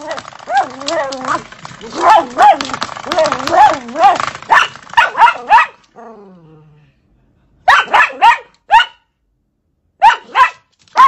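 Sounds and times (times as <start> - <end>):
dog barking in sharp yaps: 4.0 - 5.9, 7.7 - 9.1, 10.0 - 11.0.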